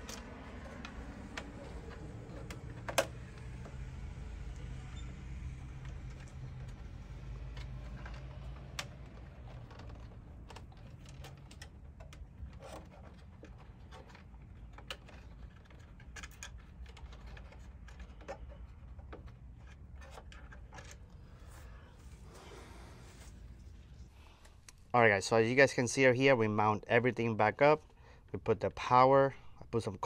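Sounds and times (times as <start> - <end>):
hands clicking plastic parts: 5.8 - 21.1.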